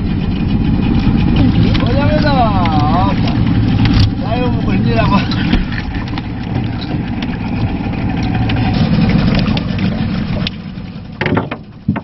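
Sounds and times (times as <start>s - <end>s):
boat engine running: 0.0s - 12.0s
sharp knocks: 11.2s - 12.0s.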